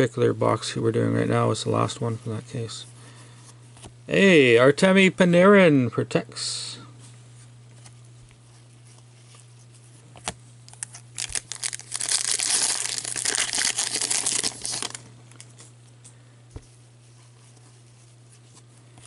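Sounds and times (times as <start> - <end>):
steady low hum: 0.0 - 19.0
foil wrapper tearing and crinkling: 10.7 - 15.5.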